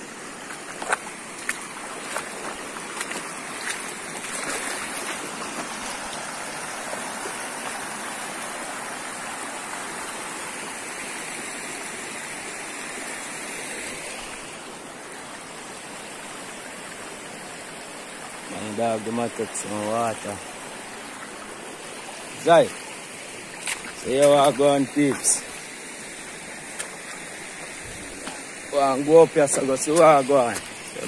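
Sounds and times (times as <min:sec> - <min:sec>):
river rushing over rocks: 0:00.0 - 0:31.0
splashes of wading: 0:00.1 - 0:08.7, 0:20.4 - 0:31.0.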